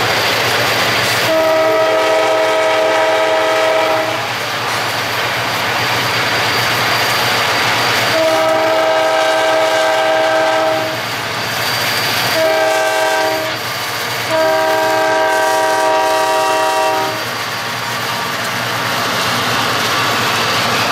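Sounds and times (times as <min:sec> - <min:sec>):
locomotive air horn blasts: 0:01.2 - 0:04.3, 0:08.1 - 0:11.0, 0:12.3 - 0:13.6, 0:14.2 - 0:17.3.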